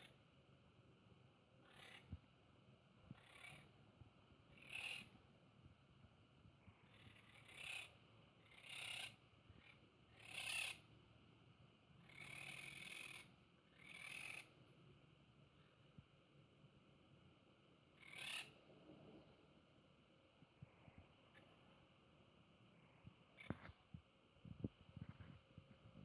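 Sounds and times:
parakeets squawking: 1.6 - 2.0, 3.2 - 3.6, 4.6 - 5.1, 6.9 - 10.8, 12.0 - 14.5, 18.0 - 18.5.

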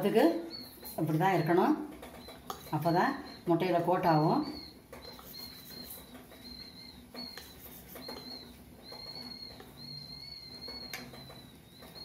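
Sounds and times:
spoon stirring batter in bowl: 0.0 - 12.0
high whistling tone: 4.3 - 12.0.

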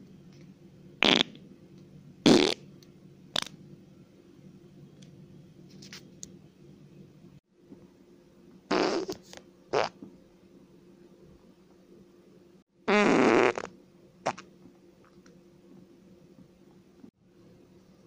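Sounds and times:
faint low hum: 0.0 - 18.0
fart noises: 1.0 - 1.4, 2.2 - 2.6, 8.7 - 10.0, 12.9 - 14.4.

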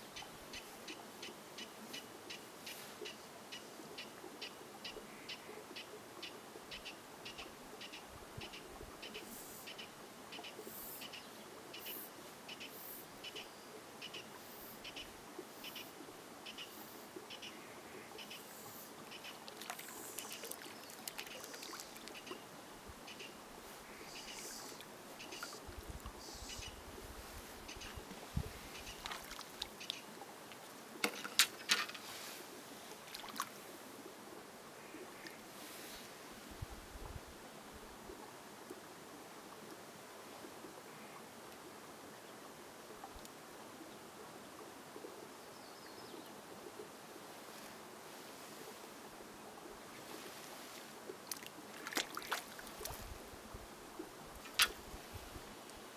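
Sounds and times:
faint steady hiss: 0.0 - 55.9
water splashing: 19.4 - 22.4, 28.0 - 31.8, 32.9 - 33.7, 50.0 - 53.2
soft high puffs of noise: 23.6 - 27.6.

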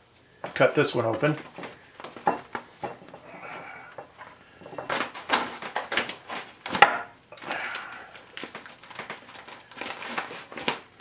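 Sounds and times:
plastic bag crinkling: 4.0 - 11.0.

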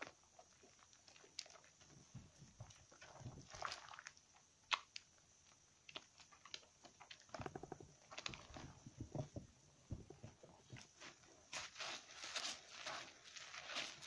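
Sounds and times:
soap squelching in wet hands: 0.8 - 5.1, 9.8 - 14.0.

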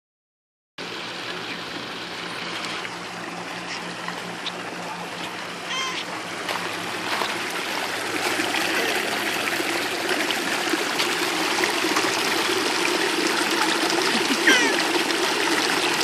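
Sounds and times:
waterfall splashing into pool: 6.4 - 16.0.

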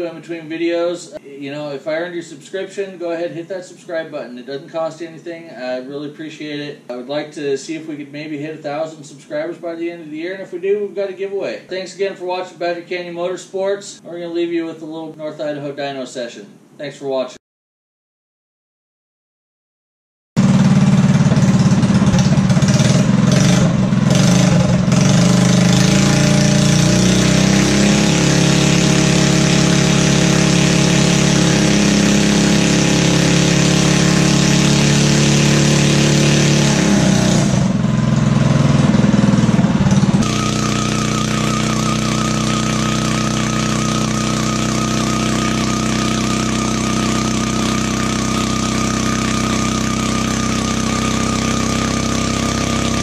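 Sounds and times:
single-cylinder engine running hard: 20.4 - 53.0
thin wavering high whine: 40.2 - 51.7.

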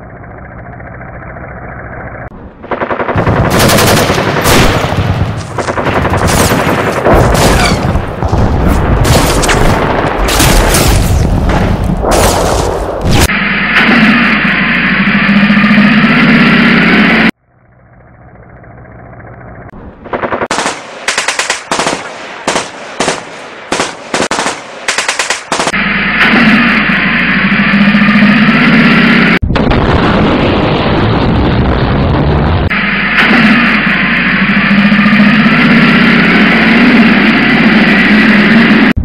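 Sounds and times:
tank engine rumble: 0.0 - 20.6, 25.5 - 39.0
machine-gun fire: 2.6 - 13.3, 20.0 - 25.8.

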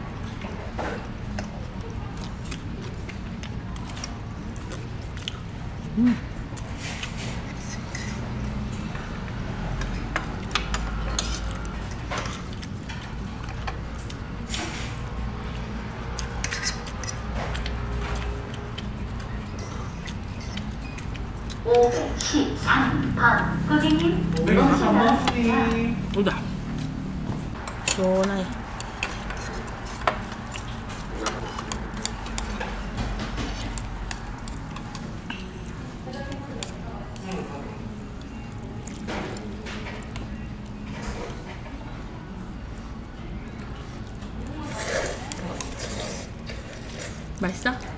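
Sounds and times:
cutlery and dishes clinking: 16.2 - 18.2.

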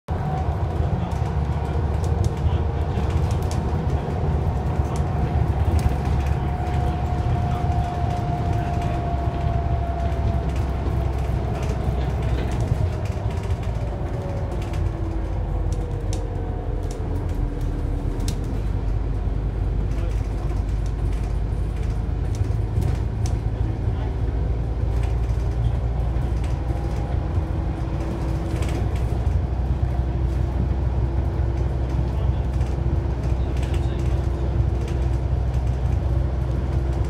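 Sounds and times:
bus diesel and road rumble: 0.1 - 37.0
bus whine: 0.1 - 37.0.

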